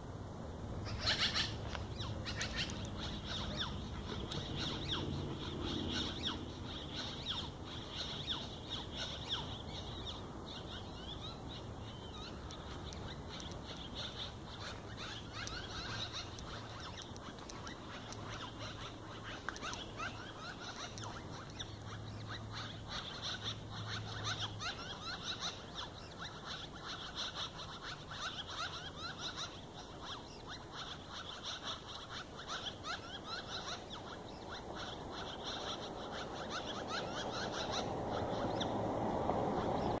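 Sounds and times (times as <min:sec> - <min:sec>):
birds chirping: 0:00.0 - 0:40.0.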